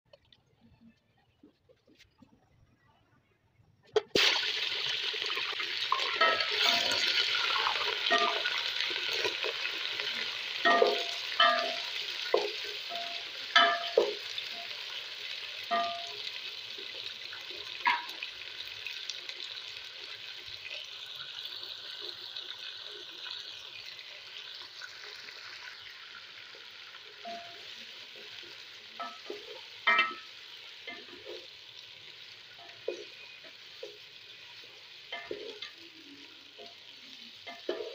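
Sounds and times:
chicken sizzling in hot oil: 0:04.0 - 0:37.9
knocks and clinks against pot: 0:10.6 - 0:14.2, 0:29.0 - 0:30.3.

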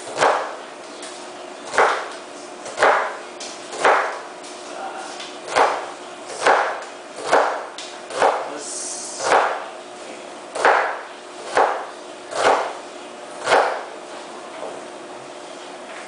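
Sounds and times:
knife chopping on wooden board: 0:00.0 - 0:01.1, 0:01.7 - 0:04.3, 0:05.2 - 0:08.6, 0:09.2 - 0:09.7, 0:10.5 - 0:12.8, 0:13.4 - 0:14.0.

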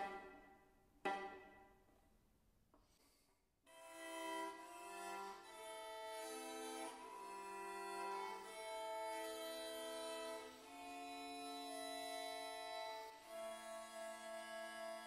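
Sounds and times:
violin plucked chord: 0:00.0 - 0:00.4, 0:01.0 - 0:01.6
bowed violin chords: 0:00.0 - 0:01.6, 0:03.8 - 0:15.0.

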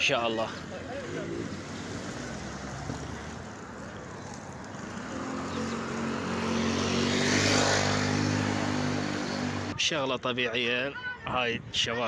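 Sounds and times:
vehicle engine hum: 0:00.6 - 0:09.8
car passing close: 0:00.9 - 0:09.7.

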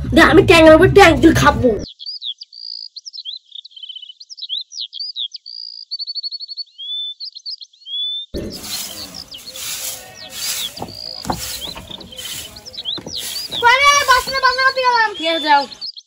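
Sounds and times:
songbirds chirping and trilling: 0:01.6 - 0:16.0
broom sweeping dirt: 0:08.4 - 0:15.2.

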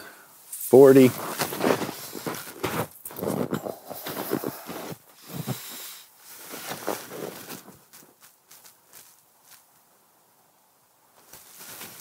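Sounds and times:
snow crunching underfoot: 0:00.6 - 0:10.0, 0:11.2 - 0:12.0
clothing rustling: 0:01.1 - 0:09.7, 0:11.2 - 0:12.0.

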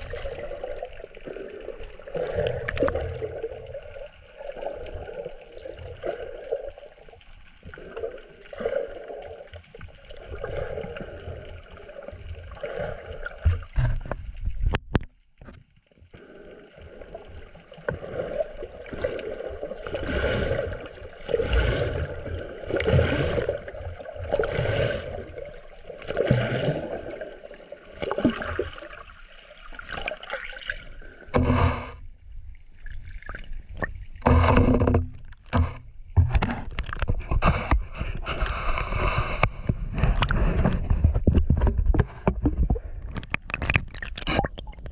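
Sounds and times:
underwater swishing and gurgling: 0:00.0 - 0:44.9
splashes and knocks: 0:12.6 - 0:15.7, 0:33.2 - 0:44.9.

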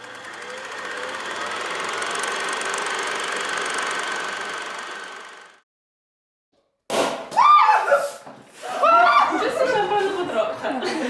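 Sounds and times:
film projector clatter: 0:00.0 - 0:05.6.

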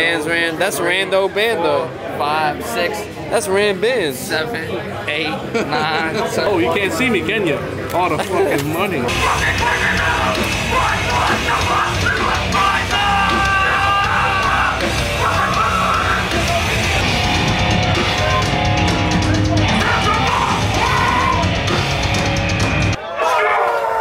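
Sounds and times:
vocals: 0:08.5 - 0:17.2, 0:19.2 - 0:21.8
heavy metal band playing: 0:09.1 - 0:23.0.

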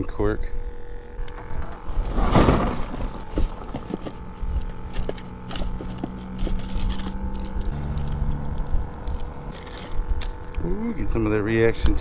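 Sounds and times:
low hum and rumble: 0:00.0 - 0:12.0
tackle bag rustling: 0:01.4 - 0:10.5.

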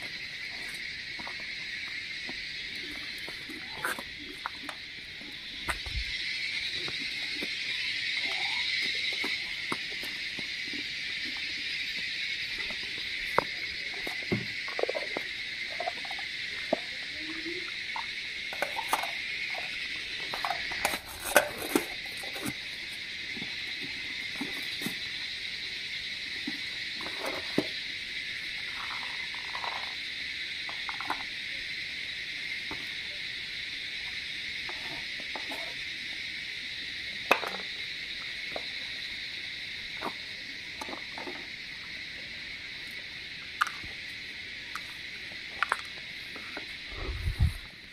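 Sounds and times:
insects chirring: 0:00.0 - 0:47.9
camping cookware clinking: 0:16.7 - 0:22.6.

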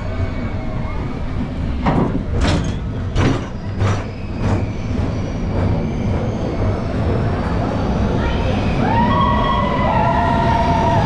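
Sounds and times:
roller coaster rumbling: 0:00.0 - 0:11.0.

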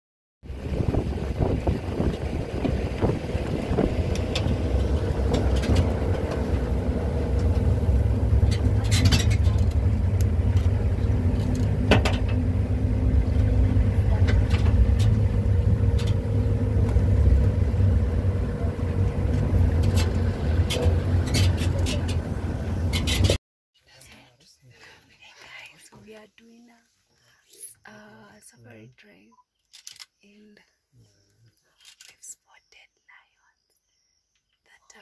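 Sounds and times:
vehicle engine and road rumble: 0:00.4 - 0:30.2
vehicle body rattling over bumps: 0:00.5 - 0:23.4.

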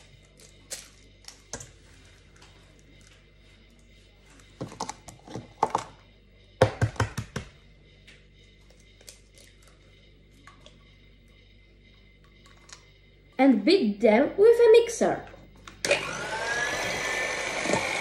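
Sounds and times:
eggs knocking on metal bowl: 0:06.6 - 0:07.6.

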